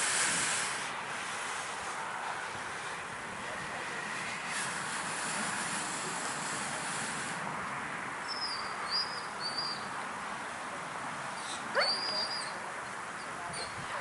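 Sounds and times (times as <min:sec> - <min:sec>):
dog whining: 0:11.7 - 0:12.6
dog yelp: 0:11.7 - 0:12.6.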